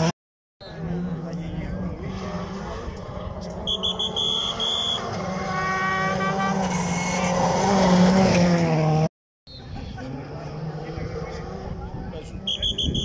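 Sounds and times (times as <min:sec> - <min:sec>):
rally car engine approaching: 0:00.0 - 0:12.8
short shrill toots: 0:03.7 - 0:07.4.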